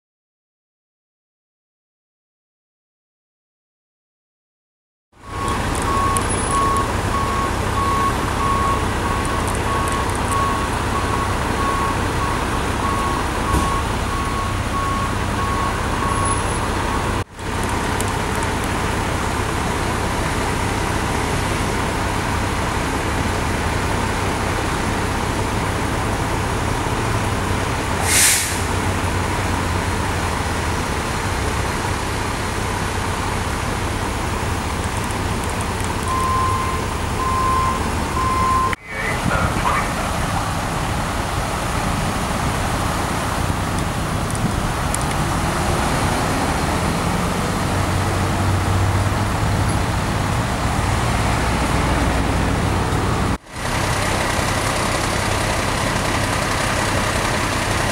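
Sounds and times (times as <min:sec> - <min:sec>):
diesel truck engines idling: 0:05.2 - 0:57.9
short hiss of air: 0:28.0 - 0:28.7.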